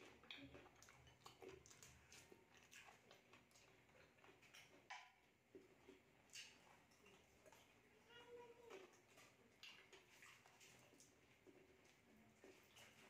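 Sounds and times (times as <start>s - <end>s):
chewing food: 0.0s - 13.0s
wet mouth clicks: 0.1s - 7.7s, 9.2s - 11.1s.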